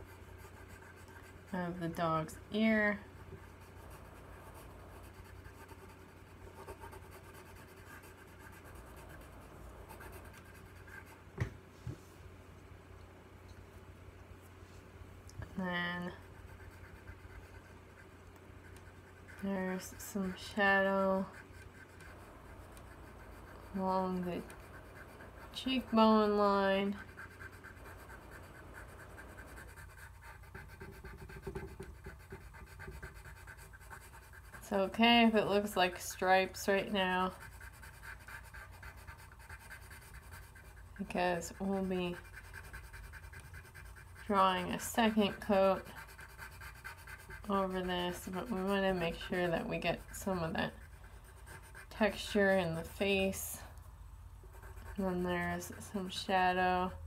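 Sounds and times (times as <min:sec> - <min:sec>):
pencil scratching on paper: 0:00.0 - 0:11.3, 0:15.5 - 0:53.7, 0:54.5 - 0:56.8
faint steady hum: 0:00.0 - 0:57.0.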